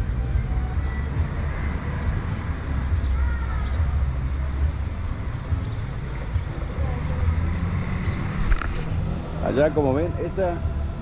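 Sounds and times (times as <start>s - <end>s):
low rumble of passing traffic: 0.0s - 11.0s.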